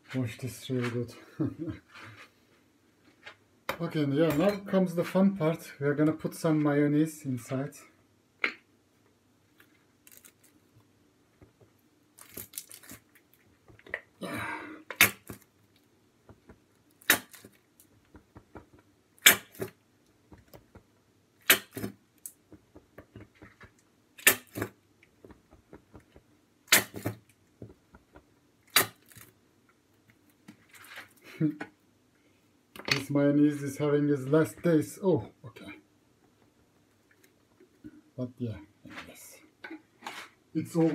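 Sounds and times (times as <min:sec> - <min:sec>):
plastic bottle slapping: 0:16.3 - 0:29.2.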